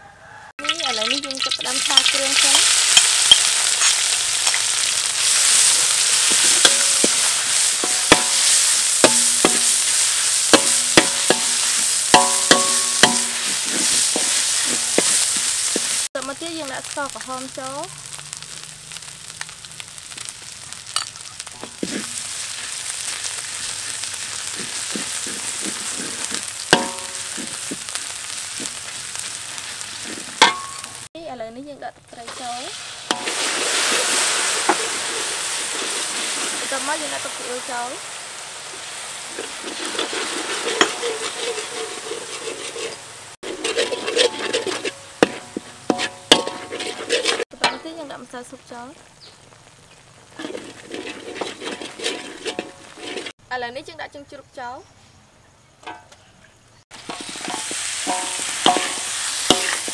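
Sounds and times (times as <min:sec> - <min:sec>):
frying hiss: 0:00.2 - 0:59.9
paste sizzling in a wok: 0:00.3 - 0:54.6, 0:56.9 - 0:59.9
metal spatula scraping a pan: 0:00.7 - 0:16.1, 0:20.9 - 0:31.1, 0:32.3 - 0:38.0, 0:38.6 - 0:48.0, 0:50.3 - 0:53.4, 0:57.0 - 0:59.9
spatula clanging on wok: 0:06.2 - 0:16.1, 0:26.7 - 0:27.9, 0:30.1 - 0:31.0, 0:39.4 - 0:48.0, 0:50.4 - 0:53.3, 0:57.1 - 0:59.9
spatula clinking against pan: 0:10.5 - 0:13.4.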